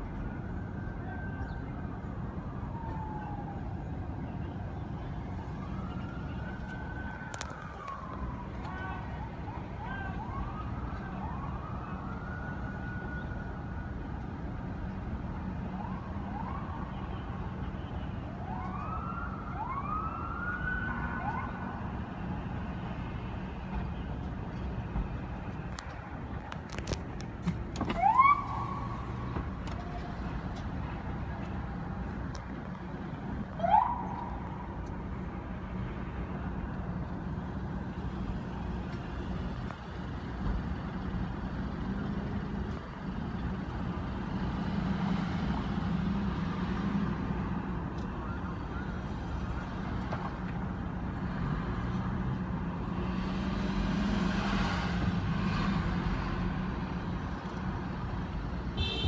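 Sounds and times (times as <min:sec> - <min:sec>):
street traffic noise: 0:00.0 - 0:59.0
police siren whoops: 0:00.4 - 0:03.9, 0:05.3 - 0:13.9, 0:15.7 - 0:17.1, 0:18.3 - 0:21.7, 0:27.9 - 0:30.4, 0:33.6 - 0:34.4.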